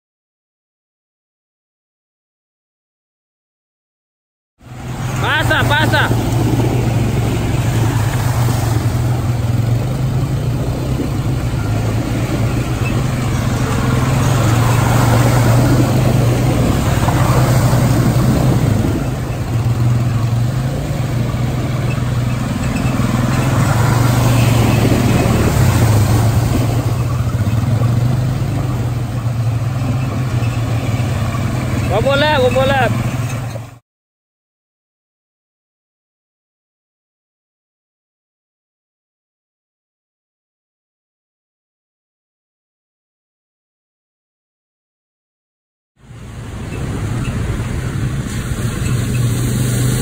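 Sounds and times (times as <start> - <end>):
water splashing under wheels: 4.6 - 33.8, 46.0 - 50.0
quad bike engines running: 4.7 - 33.8, 46.2 - 50.0.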